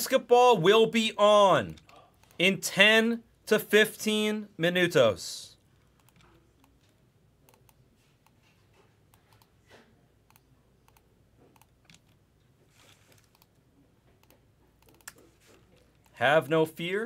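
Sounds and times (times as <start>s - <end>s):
faint keyboard typing: 1.7s - 2.4s, 5.6s - 16.2s.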